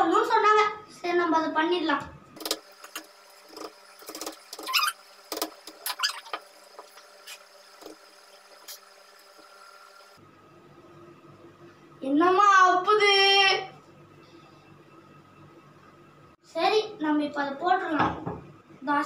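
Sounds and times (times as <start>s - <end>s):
short rising squeaks: 4.5s - 5.2s, 5.8s - 6.4s.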